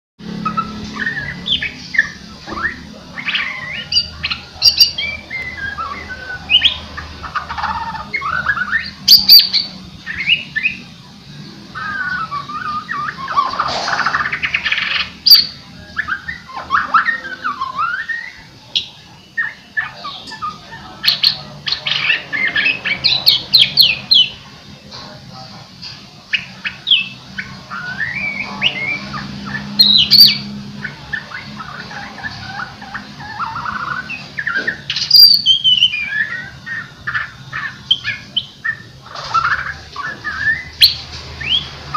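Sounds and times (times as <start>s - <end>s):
songbird singing: 0.2s - 41.9s.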